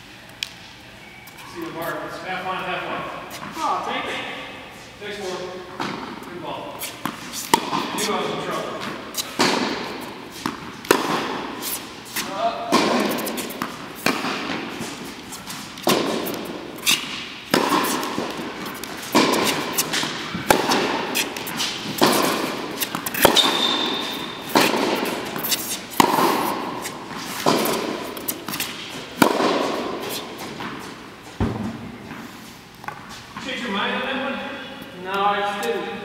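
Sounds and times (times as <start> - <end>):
tennis ball pops in echoing hall: 5.8 - 6.2, 7.0 - 11.6, 12.3 - 14.8, 15.8 - 30.8, 31.4 - 32.2.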